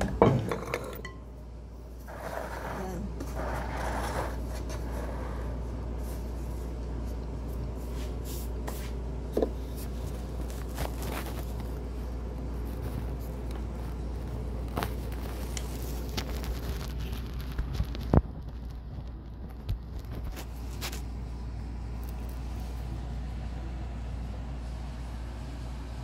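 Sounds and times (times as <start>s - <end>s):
steady low hum: 0.0s - 26.0s
spatula scraping a glass bowl: 2.1s - 5.6s.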